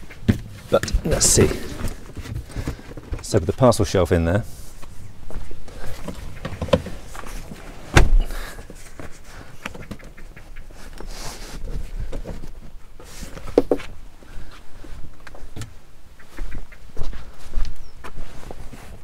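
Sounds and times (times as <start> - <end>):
luggage knocking and scraping: 0.2 - 3.4, 5.9 - 8.5
scraping rustle: 0.4 - 5.0, 5.7 - 10.0.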